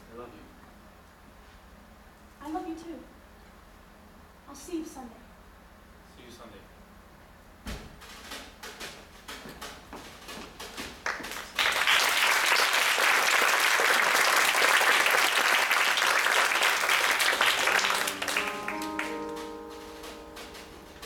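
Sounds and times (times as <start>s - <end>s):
audience applauding: 11.0s - 19.5s
held notes of music: 17.3s - 21.0s.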